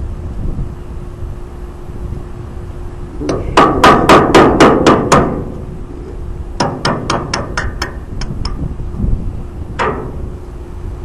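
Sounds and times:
hammer striking metal punch: 0:03.2 - 0:05.6, 0:06.6 - 0:08.6, 0:09.8 - 0:10.3.

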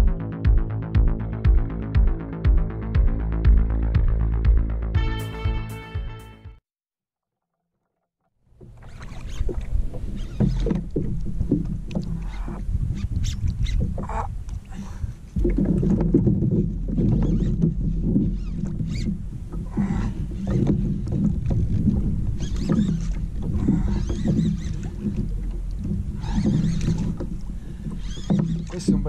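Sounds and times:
water moving around kayak: 0:08.5 - 0:29.0
wind rumbling on microphone: 0:08.6 - 0:29.0.

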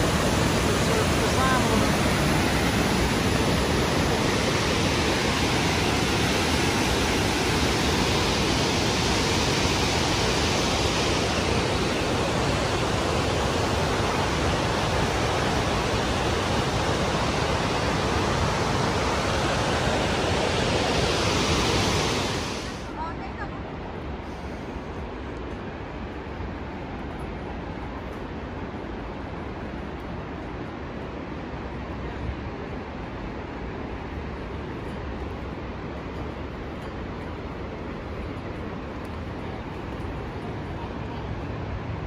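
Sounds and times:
waterfall rushing: 0:00.0 - 0:24.1.

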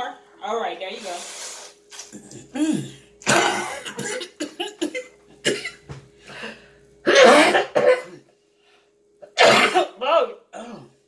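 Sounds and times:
woman coughing and spluttering: 0:02.1 - 0:05.8, 0:07.1 - 0:08.2, 0:09.2 - 0:10.9.

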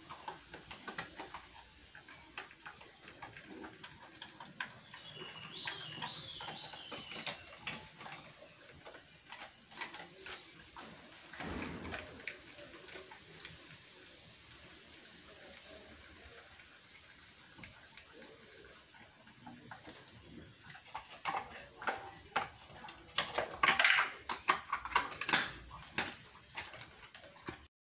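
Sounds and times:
dog crunching bones: 0:00.0 - 0:13.7, 0:19.0 - 0:27.7
bird chirping: 0:04.4 - 0:08.7.

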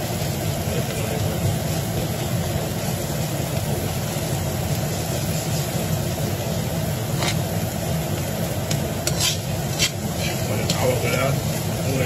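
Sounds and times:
low rumble of kitchen machinery: 0:00.0 - 0:12.0
onion stirred in a hot wok: 0:00.0 - 0:12.0
metal ladle scraping wok: 0:05.1 - 0:05.9, 0:07.0 - 0:07.6, 0:08.6 - 0:11.8.

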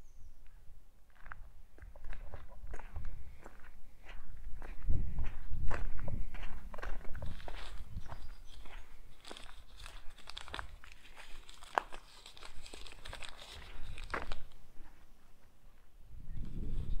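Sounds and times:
footsteps crunching over debris: 0:01.1 - 0:15.6.

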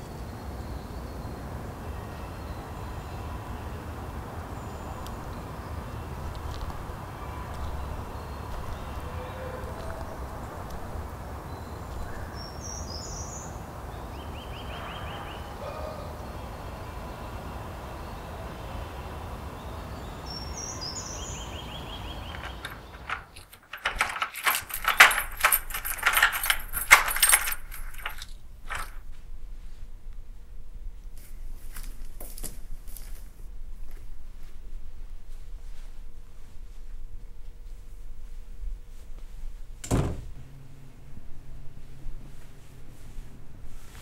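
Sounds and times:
keys jangling: 0:22.2 - 0:29.0.

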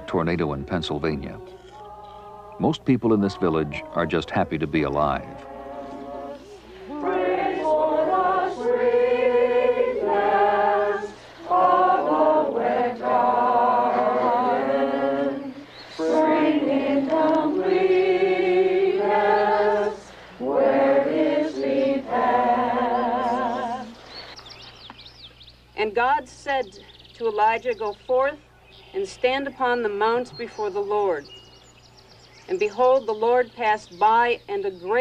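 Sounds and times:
congregation singing a hymn: 0:00.0 - 0:24.2.

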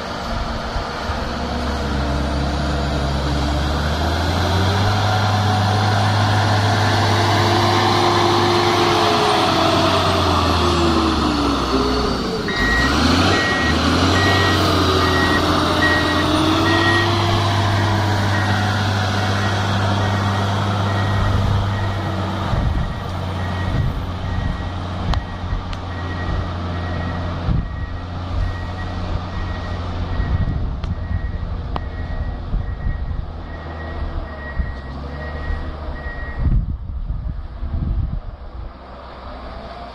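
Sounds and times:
diesel engine running under load: 0:00.0 - 0:39.9
reversing alarm beeping: 0:12.4 - 0:22.2, 0:22.8 - 0:36.5.

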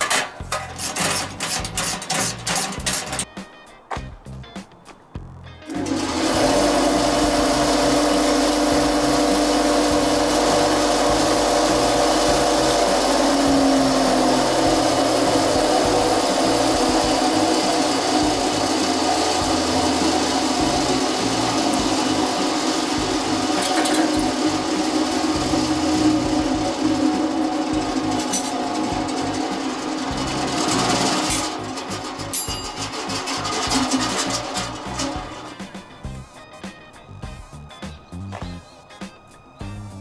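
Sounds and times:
vibrating sieve hum and buzz: 0:05.7 - 0:36.4.

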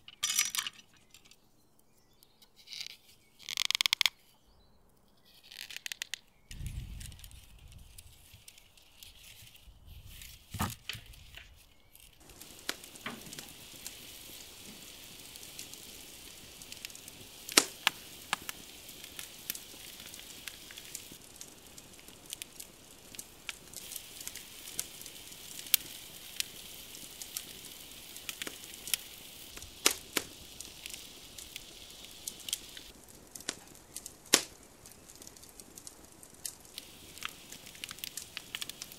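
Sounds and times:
fire crackling and popping: 0:00.0 - 0:04.2, 0:05.0 - 0:38.9
steady hiss of fire: 0:05.2 - 0:38.9.

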